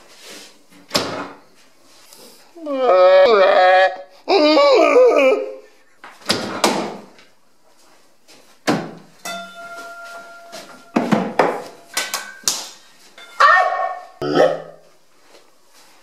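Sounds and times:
hard objects knocking and banging: 0:08.7 - 0:13.5
steady tone: 0:09.2 - 0:12.5.

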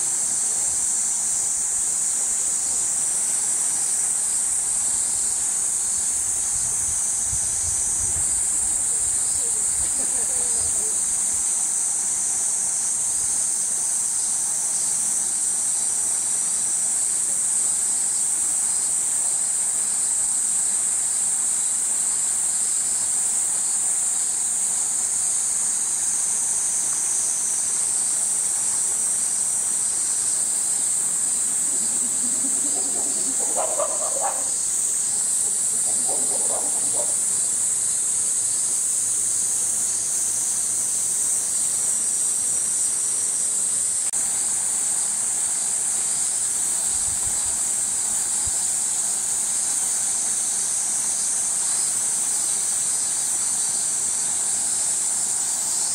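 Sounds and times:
cicadas buzzing: 0:00.0 - 0:55.9
faint calls: 0:30.4 - 0:37.6.

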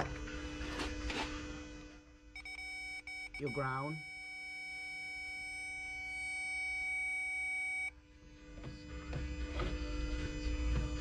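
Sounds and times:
steady low hum: 0:00.0 - 0:11.0
multimeter continuity beep: 0:02.3 - 0:08.0.

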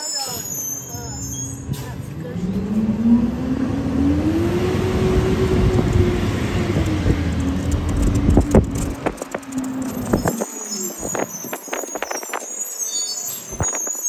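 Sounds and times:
heavy low rumble: 0:01.8 - 0:12.2
garbage truck engine running: 0:02.2 - 0:11.2.

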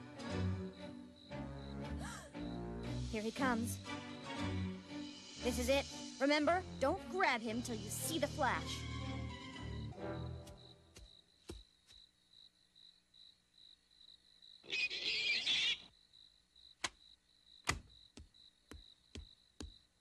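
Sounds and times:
crickets chirping: 0:00.1 - 0:20.0
footsteps: 0:10.4 - 0:12.1, 0:17.7 - 0:19.8.

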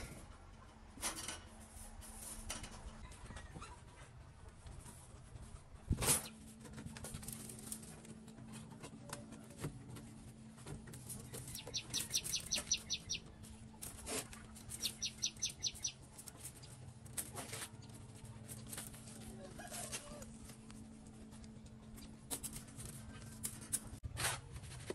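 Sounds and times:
wire mesh clicking and scraping: 0:10.6 - 0:19.2, 0:20.0 - 0:24.0
small bird chip notes: 0:11.4 - 0:13.4, 0:14.6 - 0:16.8.

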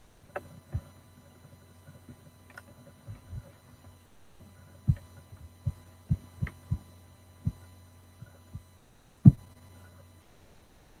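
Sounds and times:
low hum: 0:00.0 - 0:11.0
dull low thumps: 0:09.2 - 0:09.6.

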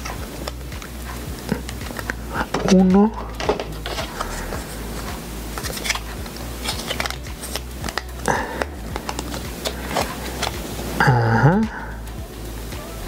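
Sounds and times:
steady low hum: 0:00.0 - 0:13.0
plastic parts clicking and tapping: 0:01.5 - 0:04.6.

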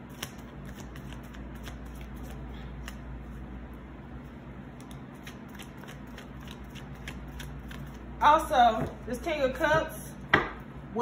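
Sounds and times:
cards being shuffled: 0:00.0 - 0:03.4, 0:04.8 - 0:08.0
steady low hum: 0:00.0 - 0:11.0.

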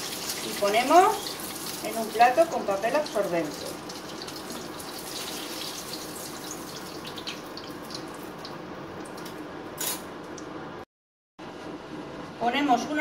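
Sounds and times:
hot oil sizzling in frying pan: 0:00.0 - 0:09.2.

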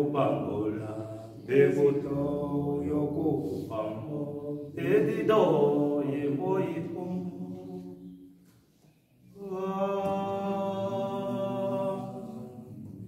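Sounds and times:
men singing unaccompanied: 0:00.0 - 0:07.8, 0:09.4 - 0:12.7.

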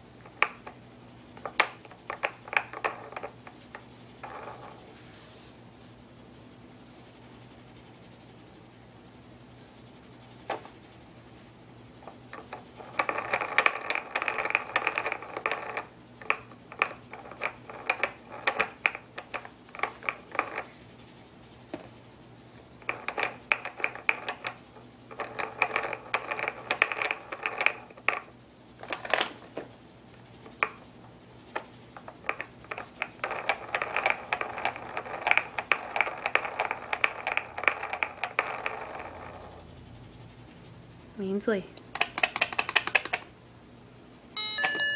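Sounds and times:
spinning toy clicking and rattling: 0:01.4 - 0:03.4, 0:12.3 - 0:20.7, 0:22.8 - 0:28.3, 0:31.5 - 0:39.7, 0:41.9 - 0:43.3.

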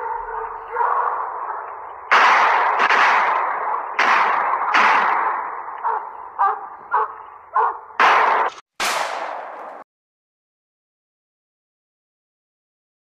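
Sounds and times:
gunshots with echo: 0:00.0 - 0:09.8.

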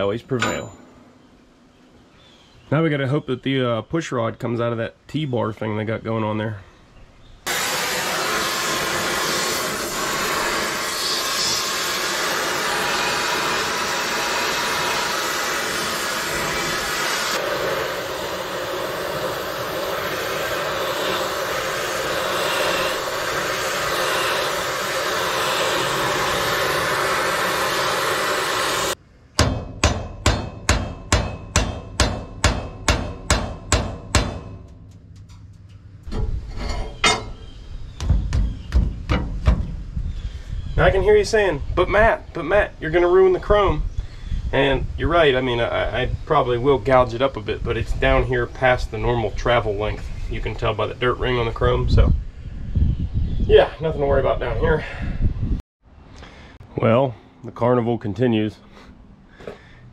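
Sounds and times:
gas torch roaring: 0:07.5 - 0:29.0.

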